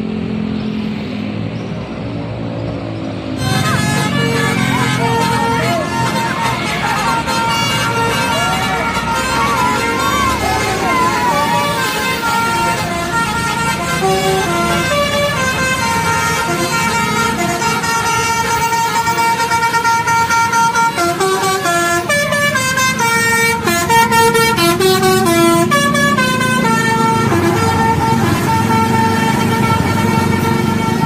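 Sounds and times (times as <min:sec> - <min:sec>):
bus engine rumble: 0:00.0 - 0:31.0
traffic rumble: 0:00.0 - 0:31.0
musical air horn melody: 0:03.3 - 0:31.0.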